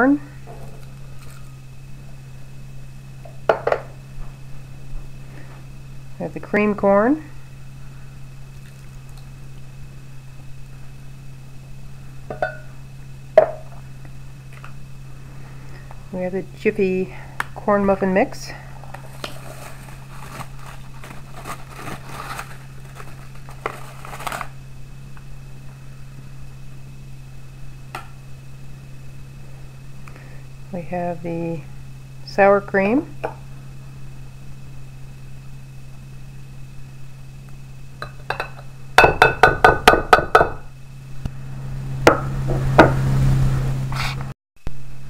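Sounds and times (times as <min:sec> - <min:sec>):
steady low hum: 0:00.0 - 0:45.0
spoon tapping glass bowl: 0:12.3 - 0:12.7
dry mix rustling into a glass bowl: 0:18.8 - 0:24.5.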